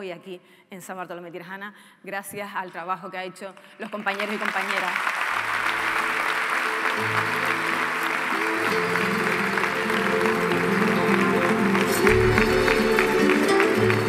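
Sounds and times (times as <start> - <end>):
audience applauding: 3.8 - 14.0
music with stepping bass line: 11.8 - 14.0.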